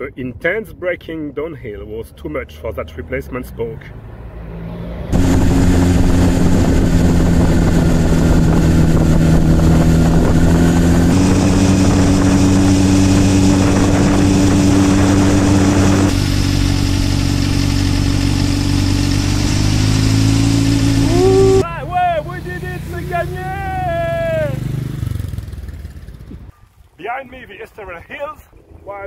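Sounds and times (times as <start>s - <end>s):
motorcycle engine running: 5.1s - 26.5s.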